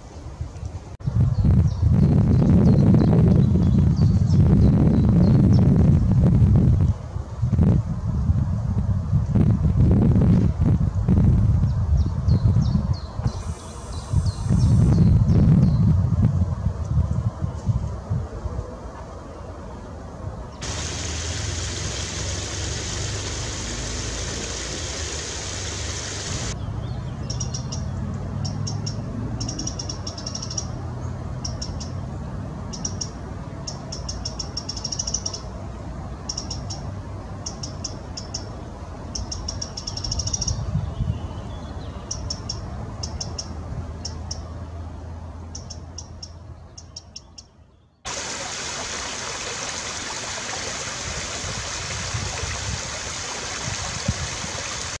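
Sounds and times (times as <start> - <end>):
wren singing trilling phrases: 11.9 - 15.9, 26.3 - 30.8, 32.7 - 35.5, 37.4 - 44.5, 45.5 - 48.0
stream running over cascade: 20.6 - 26.6, 48.1 - 55.0.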